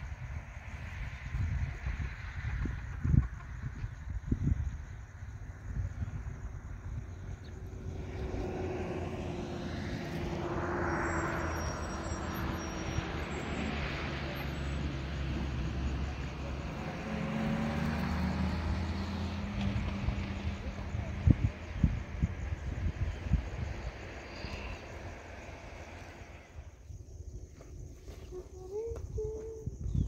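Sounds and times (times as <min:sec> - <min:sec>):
engine running: 0:07.3 - 0:26.7.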